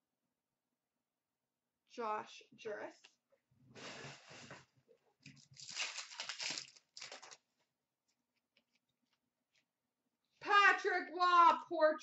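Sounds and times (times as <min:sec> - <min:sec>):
wrapper tearing and crinkling: 0:05.4 - 0:07.4.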